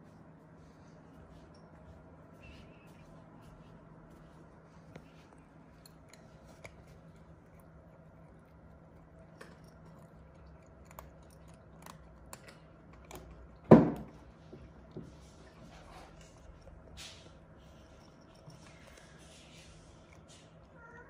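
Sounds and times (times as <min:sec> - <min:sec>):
cats crunching dry kibble: 0:04.8 - 0:20.8.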